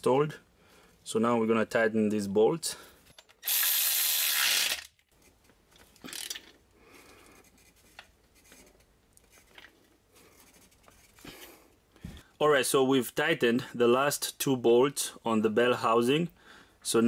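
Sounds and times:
electric ratchet running: 3.4s - 4.9s.

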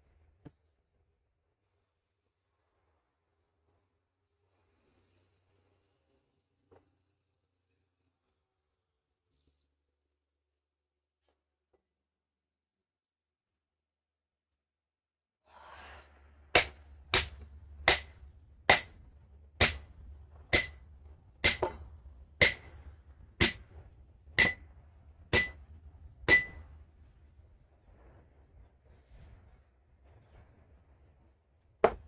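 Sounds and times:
hammer striking metal wedge: 16.6s - 23.8s, 24.4s - 24.7s, 25.3s - 25.6s, 26.2s - 26.7s.

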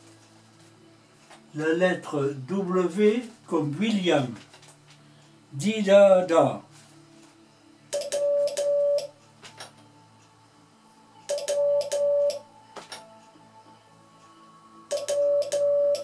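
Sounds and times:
morse code beeps: 7.9s - 9.1s, 11.3s - 12.4s, 14.9s - 16.0s.

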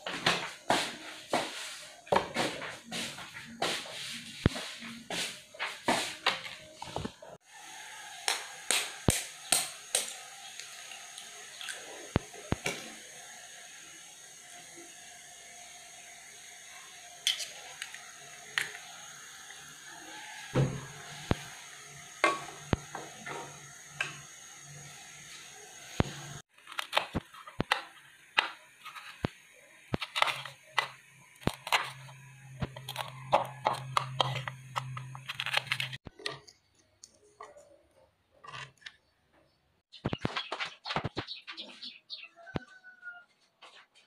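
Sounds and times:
spoons clinking against pot and bowls: 17.2s - 18.8s, 22.2s - 24.3s, 29.9s - 37.7s.

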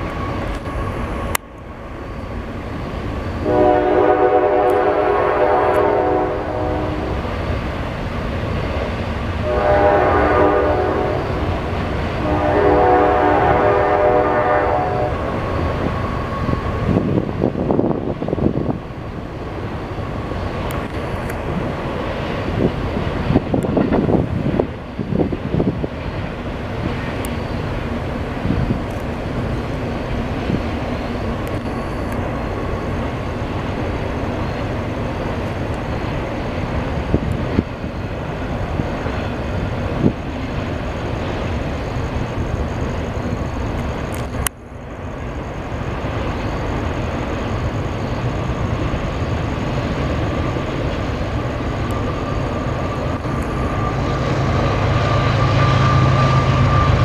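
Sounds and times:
train clicks and clanks: 0.0s - 57.0s
train wheels rumbling on rail: 0.0s - 57.0s.

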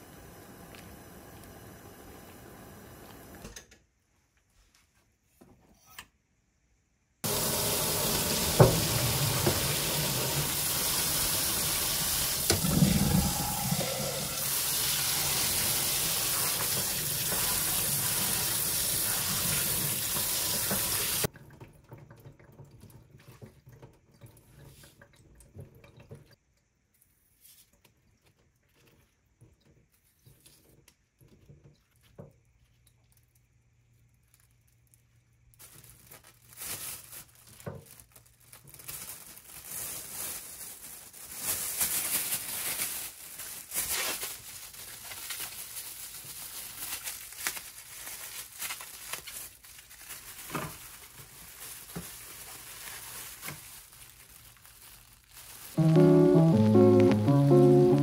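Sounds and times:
faucet spraying water: 7.2s - 21.3s
hands handling wet leaves: 29.9s - 56.0s.

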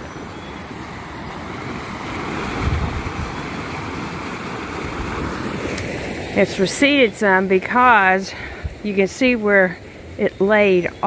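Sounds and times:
floodwater rushing from culvert: 0.0s - 11.0s
wind rumble on microphone: 1.6s - 6.6s, 8.4s - 8.9s.

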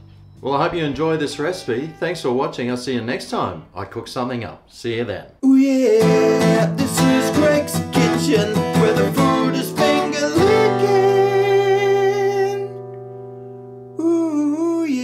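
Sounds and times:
acoustic guitar strumming chords: 5.8s - 14.5s.

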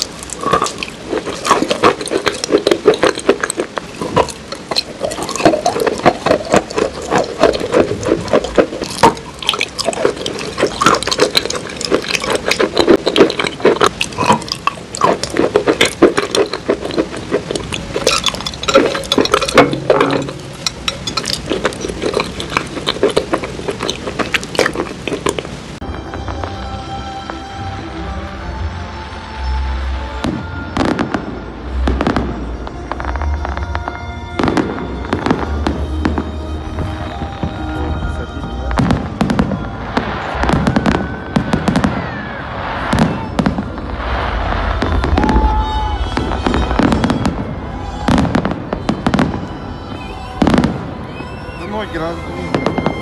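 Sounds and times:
biting into dessert bar: 0.0s - 25.6s
chewing and mouth sounds: 0.0s - 25.8s.

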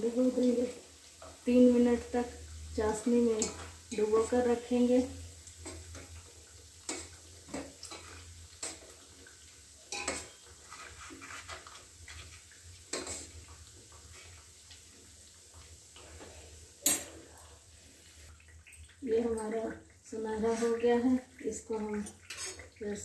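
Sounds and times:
metallic clinks against a pot: 9.9s - 10.3s.

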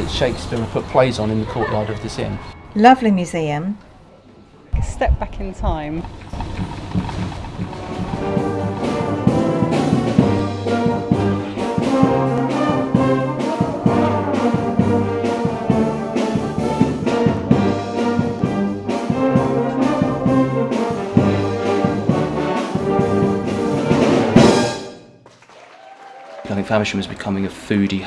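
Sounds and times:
brass band music: 6.8s - 25.3s.

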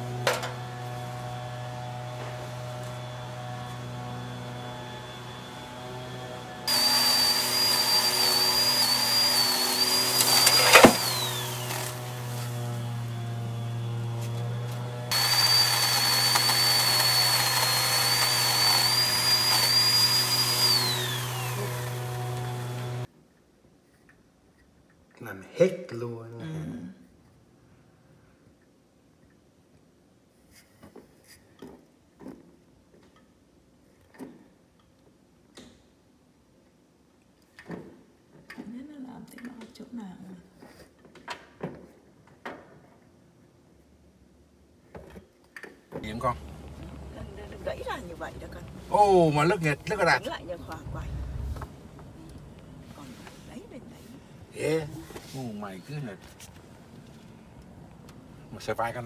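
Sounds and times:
power saw motor whine: 0.0s - 23.1s
saw cutting branch: 1.9s - 23.1s.

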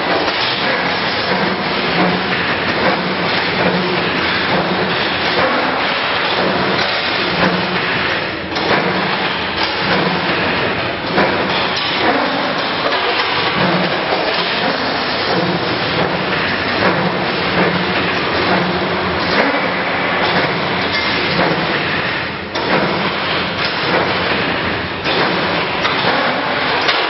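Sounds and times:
loud mechanical clatter: 0.0s - 27.0s.

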